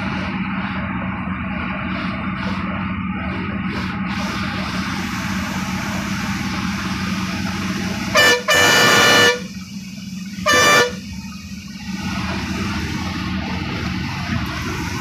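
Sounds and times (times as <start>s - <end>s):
bus engine droning: 0.0s - 15.0s
bus horn tooting: 8.0s - 9.6s, 10.4s - 11.3s.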